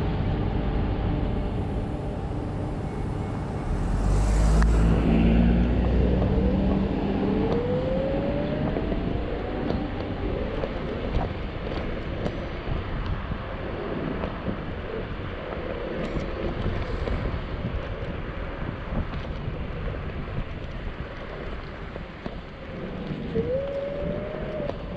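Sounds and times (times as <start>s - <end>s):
deep vehicle hum: 0.0s - 12.6s
wind and road noise: 0.0s - 24.9s.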